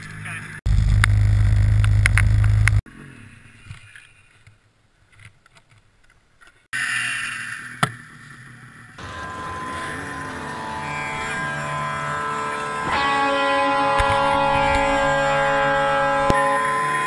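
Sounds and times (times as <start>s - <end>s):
snowmobile engine running: 0.7s - 2.8s, 7.0s - 17.0s.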